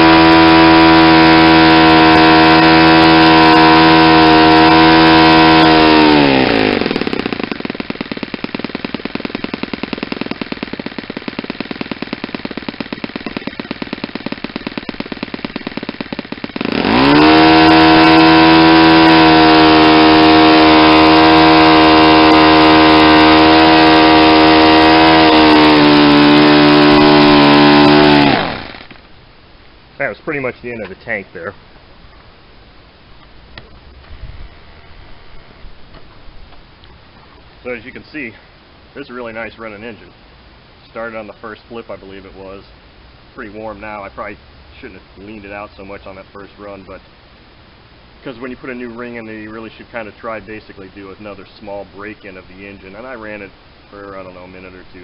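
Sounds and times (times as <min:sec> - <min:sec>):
model engine with propeller: 0:00.0 - 0:29.1.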